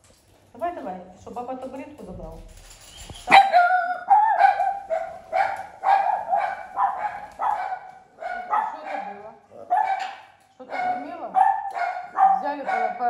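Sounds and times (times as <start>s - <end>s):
dog barking: 3.3s - 13.0s.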